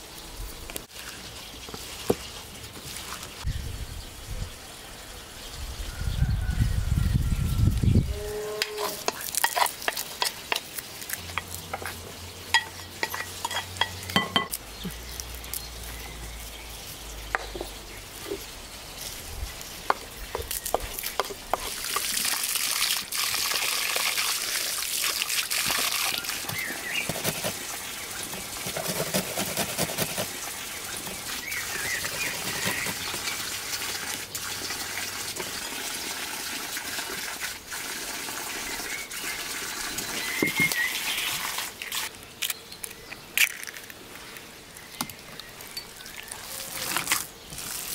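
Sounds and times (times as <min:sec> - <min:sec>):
spoon tapping glass bowl: 0:12.6 - 0:14.6
greens scraped off cutting board: 0:26.5 - 0:30.4, 0:31.8 - 0:33.3.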